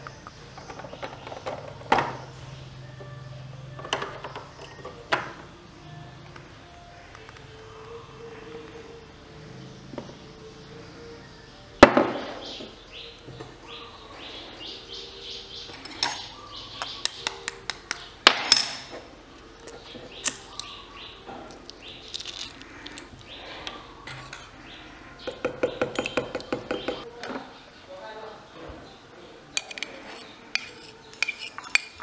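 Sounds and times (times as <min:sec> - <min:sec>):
egg tapping ceramic bowl: 0:25.3 - 0:27.0.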